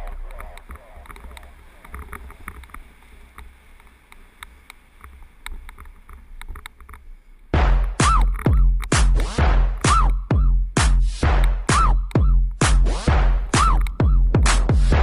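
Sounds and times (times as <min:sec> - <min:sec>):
bike clicks and rattles: 0:00.0 - 0:07.1
bike tyres on gravel: 0:00.0 - 0:07.5
wind rumbling on microphone: 0:00.0 - 0:10.8.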